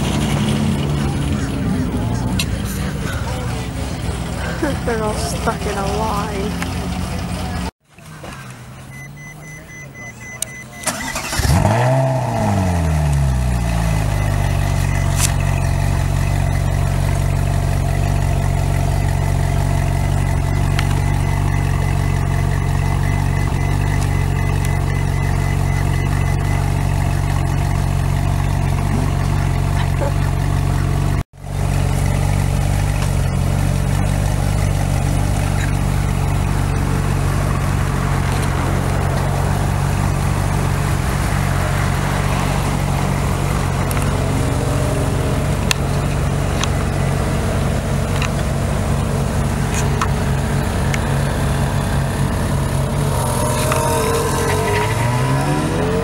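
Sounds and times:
car engine idling: 0.0s - 56.0s.

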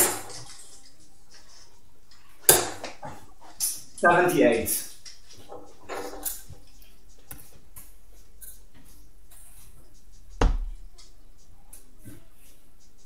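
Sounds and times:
faint room noise: 0.0s - 13.0s
dart hitting dartboard: 2.5s - 3.0s, 10.4s - 10.8s.

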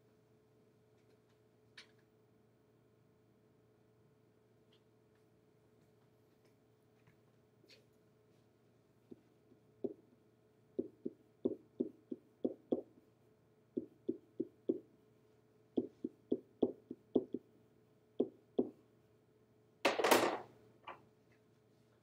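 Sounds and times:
pen tapping on whiteboard: 10.8s - 12.9s, 13.8s - 14.8s, 15.8s - 17.4s, 18.2s - 18.8s.

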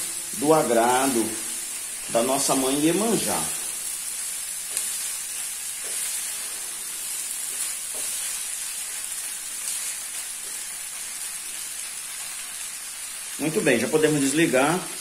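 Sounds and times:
food sizzling in a frying pan: 0.0s - 15.0s
wooden spoon scraping: 4.7s - 8.6s.

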